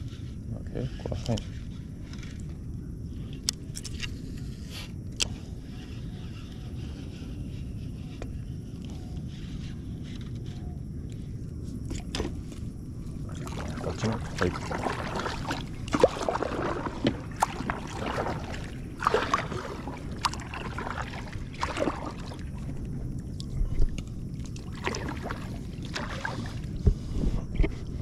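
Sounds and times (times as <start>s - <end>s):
water splashing around raft: 12.0s - 23.6s, 24.4s - 26.8s.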